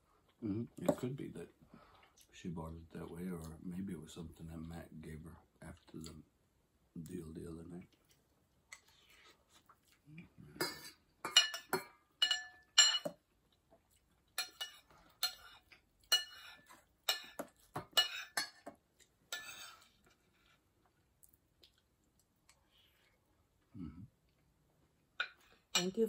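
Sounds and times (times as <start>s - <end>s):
cutlery clinking on a plate: 10.6s - 13.2s, 14.4s - 19.9s.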